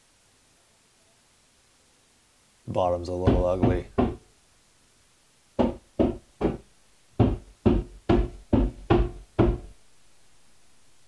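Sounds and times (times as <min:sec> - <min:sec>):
hollow knocks: 0:03.2 - 0:04.3, 0:05.6 - 0:09.8.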